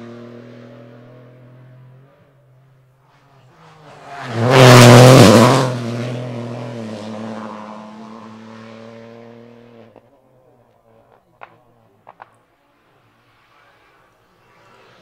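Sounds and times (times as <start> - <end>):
rally car engine passing: 0.0 - 15.0
gravel noise: 9.9 - 15.0.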